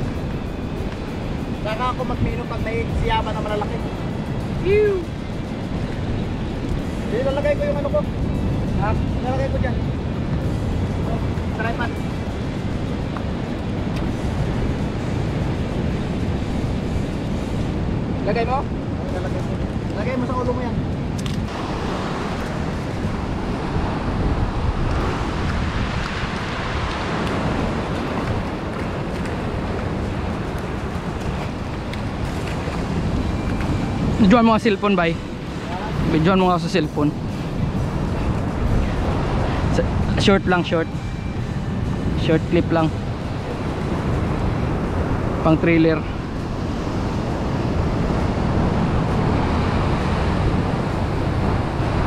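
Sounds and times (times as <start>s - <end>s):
wind buffeting microphone: 0.0s - 52.0s
sea surf breaking on rocks: 21.5s - 52.0s.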